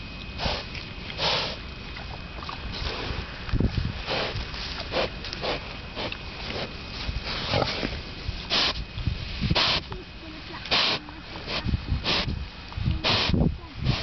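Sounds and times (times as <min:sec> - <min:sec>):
pigs sniffing and snuffling: 0:00.0 - 0:14.0
pig snort: 0:00.4 - 0:01.6, 0:04.0 - 0:08.8, 0:09.5 - 0:09.9, 0:10.6 - 0:12.4, 0:13.0 - 0:14.0.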